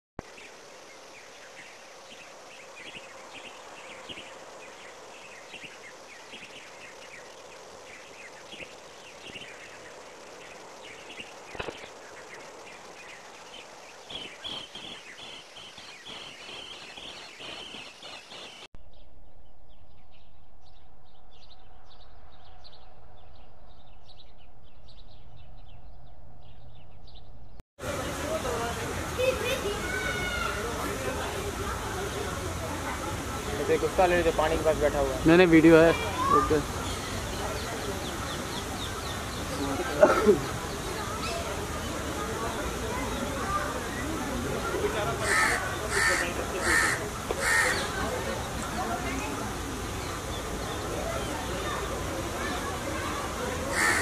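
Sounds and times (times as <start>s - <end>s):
small birds chirping: 0.2s - 28.2s, 29.2s - 54.0s
low hum: 18.8s - 27.6s.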